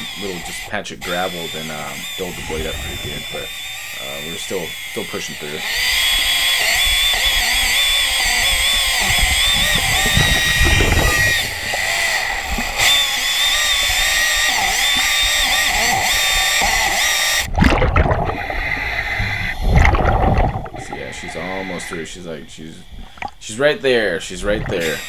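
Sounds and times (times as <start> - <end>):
underwater chainsaw cutting wood: 0.0 - 25.0
low rumbling: 2.1 - 3.8, 5.7 - 14.2, 17.5 - 23.4
water bubbling: 2.4 - 3.7, 9.1 - 14.0, 17.5 - 23.5, 24.1 - 25.0.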